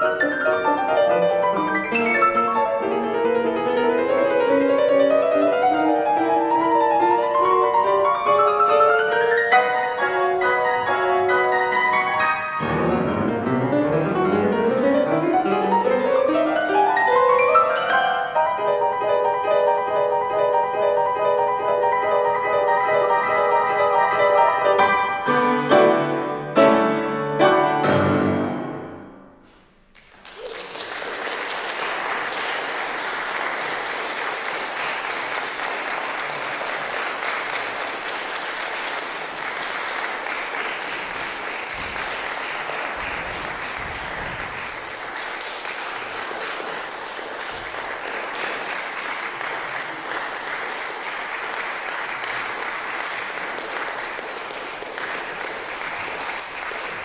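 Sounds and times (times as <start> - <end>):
grand piano chords: 0.0 - 29.6
audience applause: 30.0 - 57.0.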